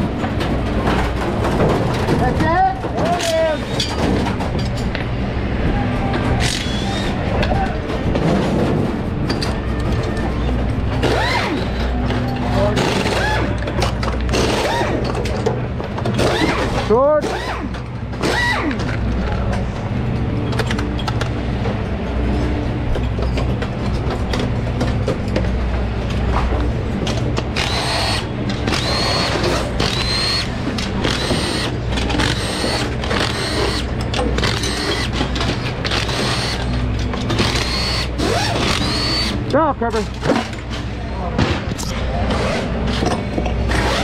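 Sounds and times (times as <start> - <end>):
impact wrench whirring: 11.0 - 11.9, 14.3 - 15.1, 16.1 - 18.8, 27.6 - 39.4.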